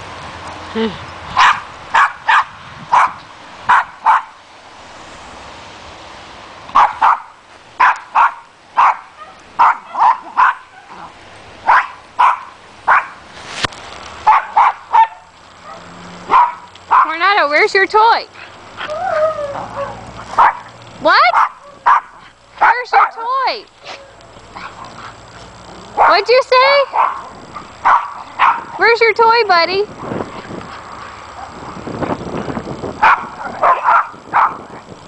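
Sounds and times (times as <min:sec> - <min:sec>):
dog barking: 0:01.4 - 0:04.4, 0:06.8 - 0:13.2, 0:14.2 - 0:17.1, 0:19.8 - 0:20.7, 0:21.3 - 0:23.2, 0:26.0 - 0:26.3, 0:26.9 - 0:28.8, 0:33.0 - 0:34.6.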